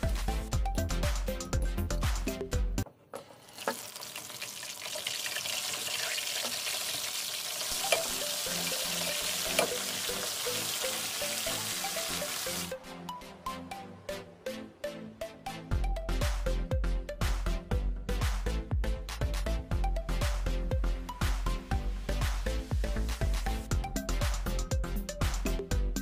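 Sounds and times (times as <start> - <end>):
chicken deep-frying in oil: 3.3 - 12.7.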